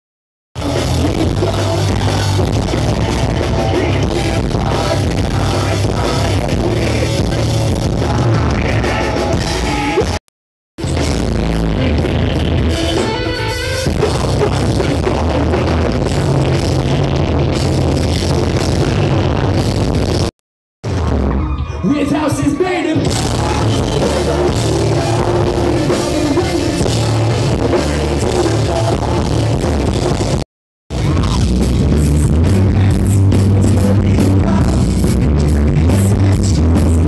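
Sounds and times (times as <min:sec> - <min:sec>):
live rock band playing: 0:00.6 - 0:10.2, 0:10.8 - 0:20.3, 0:20.9 - 0:37.0
person singing into a microphone: 0:00.6 - 0:10.2, 0:11.7 - 0:17.0, 0:21.9 - 0:30.4, 0:32.0 - 0:37.0.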